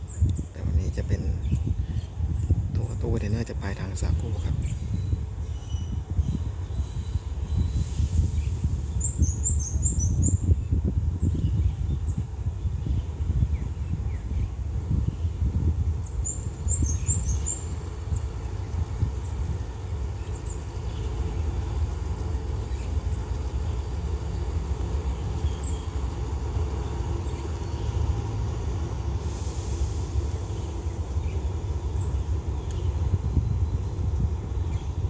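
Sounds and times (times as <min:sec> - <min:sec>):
distant diesel locomotive rumble: 0:00.0 - 0:35.0
birds chirping: 0:11.2 - 0:35.0.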